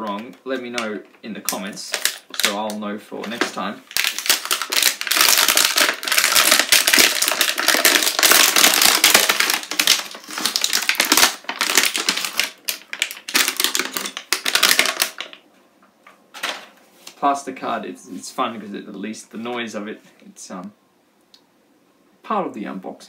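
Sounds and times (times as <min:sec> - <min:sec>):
plastic blister crackling and tearing: 0:01.0 - 0:15.4.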